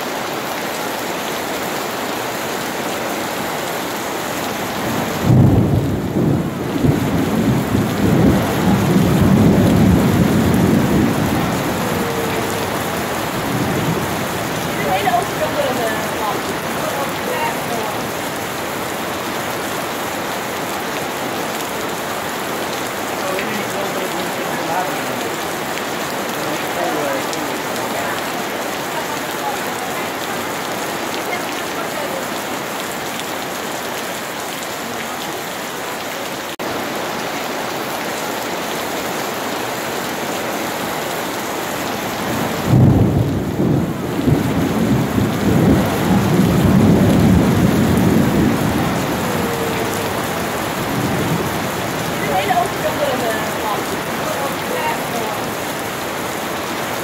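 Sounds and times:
heavy rain: 0:00.0 - 0:57.0
thunder rumbling: 0:04.6 - 0:19.6, 0:42.2 - 0:55.9.

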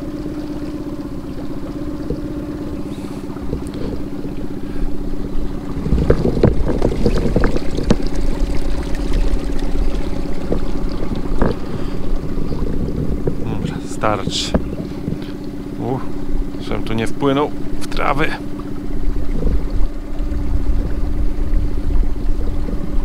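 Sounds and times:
boat motor humming: 0:00.0 - 0:23.0.

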